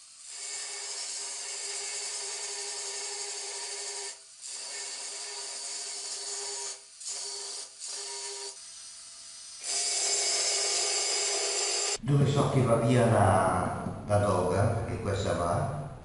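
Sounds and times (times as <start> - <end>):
angle grinder cutting wood: 0.0 - 12.0.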